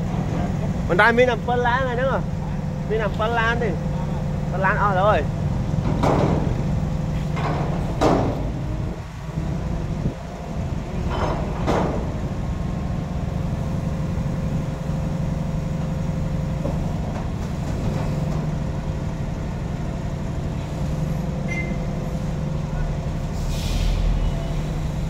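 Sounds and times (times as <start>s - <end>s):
diesel engine idling: 0.0s - 25.0s
air hissing bursts: 23.3s - 25.0s.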